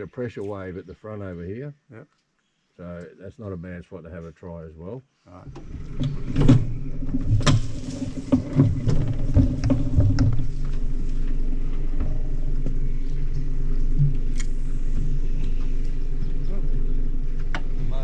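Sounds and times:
outboard motor running: 5.5s - 18.0s.

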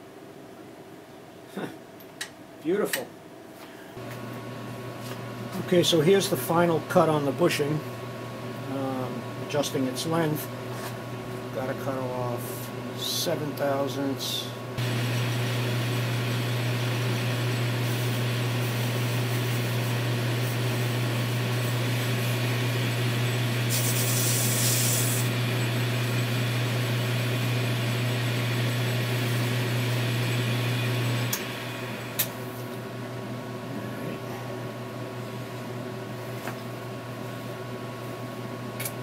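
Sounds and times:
metal lathe humming: 14.8s - 32.4s.

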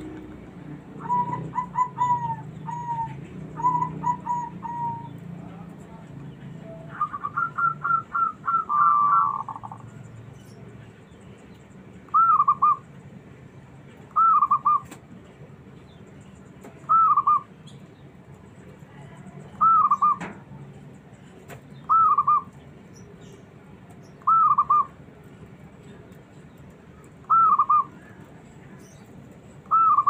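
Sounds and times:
zebra dove cooing: 1.0s - 5.5s, 6.9s - 9.9s, 19.6s - 20.3s, 27.2s - 28.2s, 29.7s - 30.0s.

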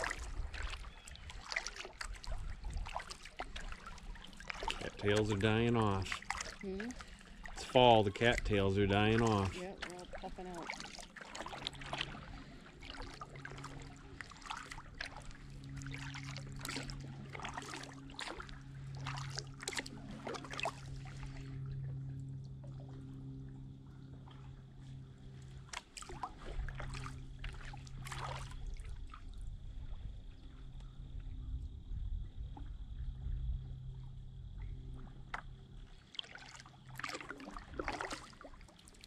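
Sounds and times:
water dripping off paddle: 0.0s - 21.4s, 36.1s - 39.0s
steady low hum: 1.3s - 38.7s.

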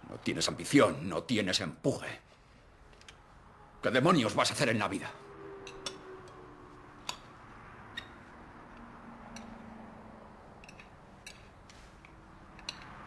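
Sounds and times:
cutlery clicking on plates: 12.5s - 13.0s.

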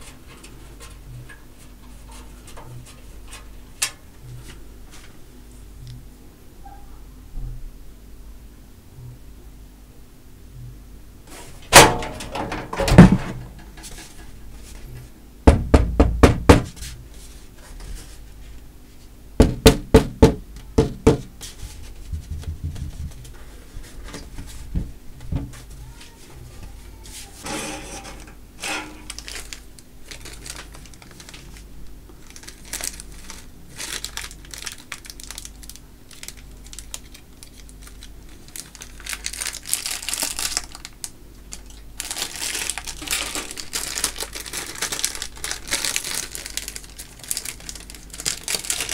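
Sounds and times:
rustling: 41.6s - 48.9s.

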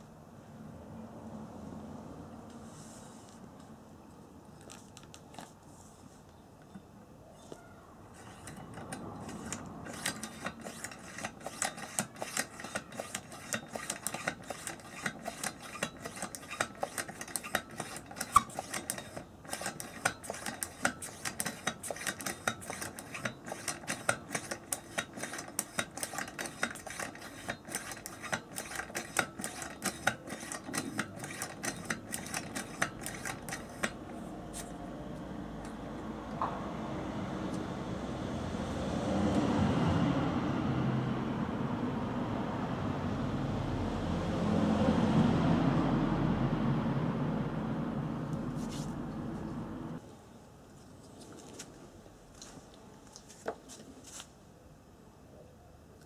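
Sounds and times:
lantern hand pump clicking: 8.2s - 34.2s.

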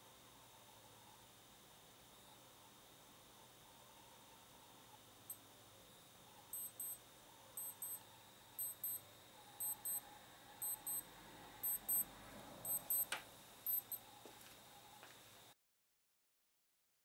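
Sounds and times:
electronic alarm double beeps: 6.6s - 7.0s, 7.6s - 8.0s, 8.6s - 9.0s, 9.6s - 10.0s, 10.6s - 11.0s, 11.6s - 13.1s, 13.7s - 14.0s.

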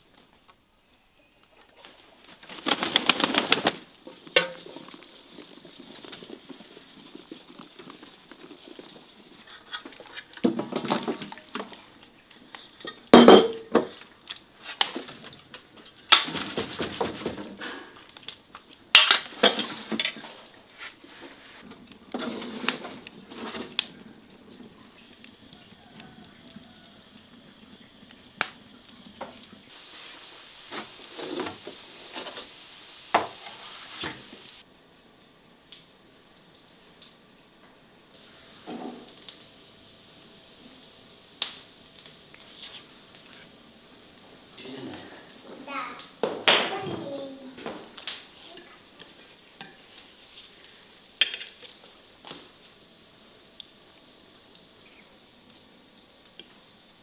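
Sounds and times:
metal cookware clattering: 4.3s - 4.9s, 12.8s - 13.9s.

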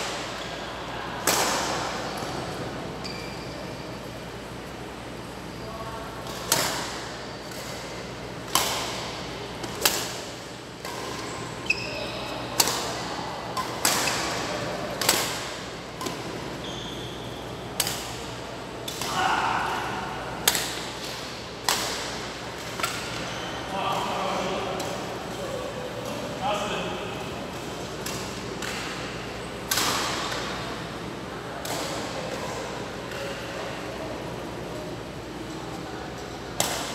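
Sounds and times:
shoes squeaking on court floor: 2.1s - 4.1s, 10.9s - 14.7s, 16.1s - 18.2s, 23.0s - 24.2s
rackets hitting shuttlecock: 6.2s - 11.9s, 12.5s - 16.4s, 20.4s - 23.3s, 27.6s - 30.6s, 36.6s - 36.9s.

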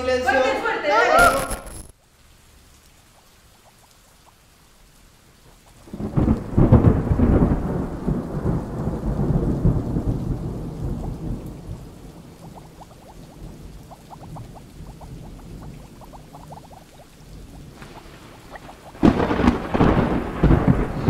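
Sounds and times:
soft rain: 0.0s - 21.0s
rolling thunderclap: 5.8s - 21.0s.

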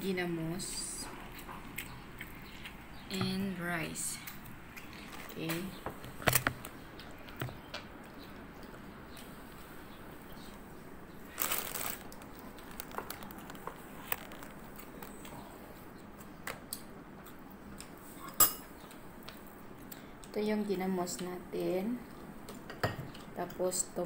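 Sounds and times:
crinkle: 11.2s - 15.5s.

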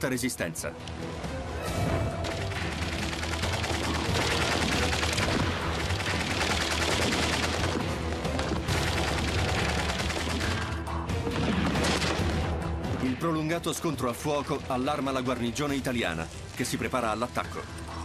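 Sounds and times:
low background music: 0.0s - 18.0s
rapid gunfire: 2.2s - 12.4s.

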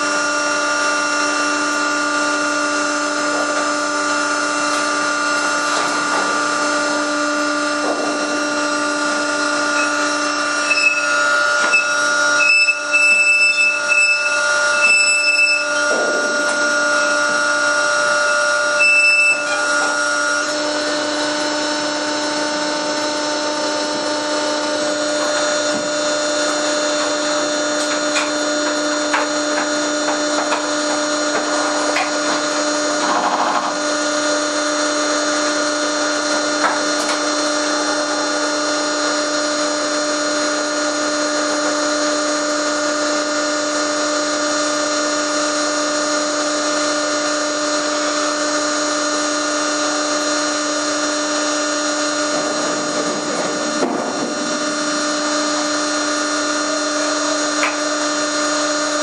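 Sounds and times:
hydraulic power unit whining: 0.0s - 59.0s.

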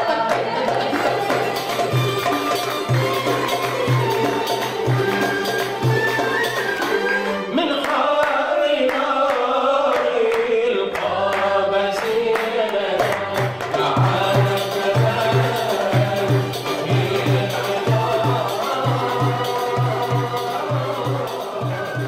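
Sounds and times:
music with hand percussion: 0.0s - 10.4s, 11.0s - 22.0s
person singing: 6.9s - 22.0s.

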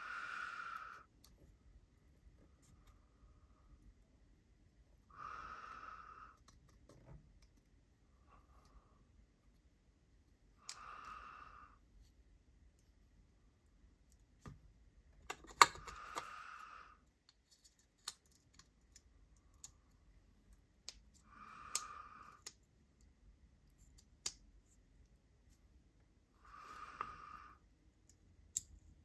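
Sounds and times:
soft hissing noises: 0.0s - 4.0s, 5.0s - 6.4s, 10.4s - 12.3s, 15.8s - 18.3s, 21.1s - 23.0s, 23.7s - 27.7s.

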